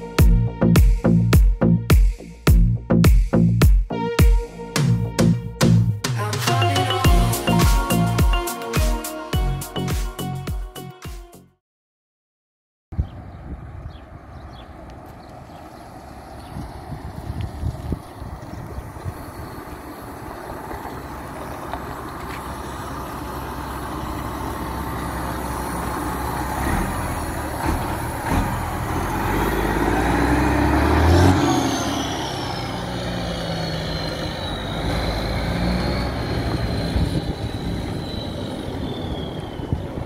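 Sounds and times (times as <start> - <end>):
diesel truck driving past: 13.1 - 40.0.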